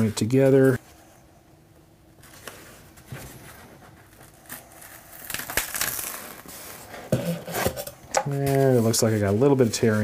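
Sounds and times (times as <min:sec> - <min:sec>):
paper facing tearing: 0:04.1 - 0:06.6
foam board rustling and creaking: 0:06.3 - 0:10.0.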